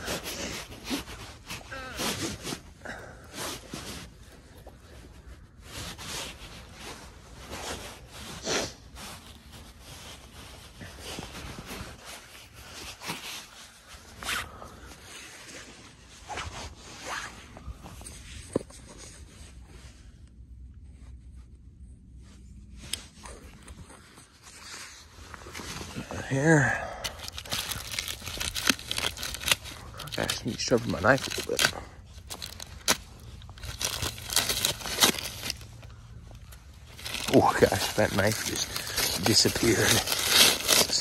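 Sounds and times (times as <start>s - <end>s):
coat fabric rustling: 22.2s - 41.0s.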